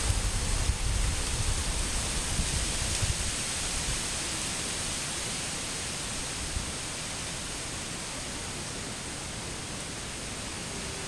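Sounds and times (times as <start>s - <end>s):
distant waterfall rushing: 0.0s - 11.0s.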